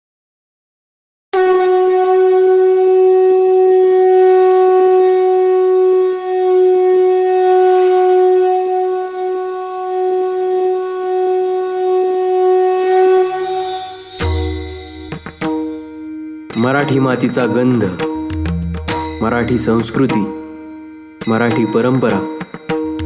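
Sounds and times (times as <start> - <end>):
wind instrument long held note: 1.4 - 16.3.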